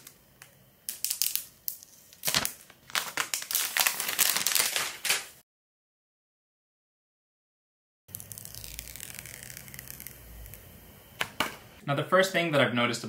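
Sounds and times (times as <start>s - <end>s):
plastic wrap crinkling: 1.0s - 5.4s, 8.1s - 10.4s.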